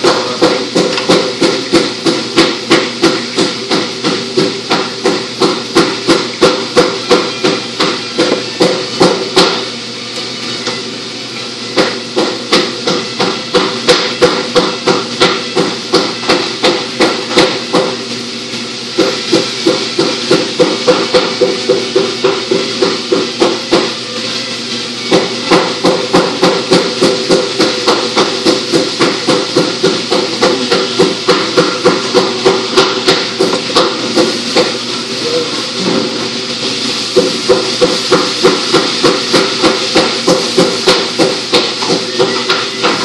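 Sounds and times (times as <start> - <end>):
sharp hammer-like knocks: 0.0 - 9.6, 11.8 - 18.0, 25.1 - 34.8, 37.2 - 43.0.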